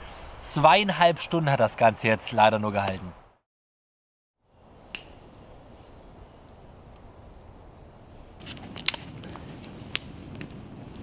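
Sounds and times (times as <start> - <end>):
campfire burning: 6.6 - 11.0
wood crackling and snapping: 8.4 - 11.0.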